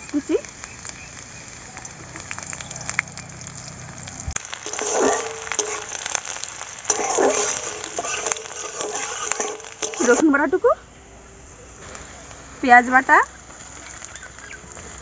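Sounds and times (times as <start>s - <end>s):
onion sizzling in hot oil: 0.0s - 15.0s
metal spatula scraping pan: 4.4s - 10.2s.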